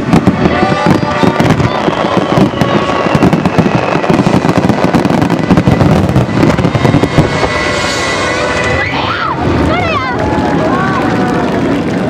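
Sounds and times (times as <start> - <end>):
firework shells bursting: 0.0 - 8.8
firework crackling: 0.0 - 12.0.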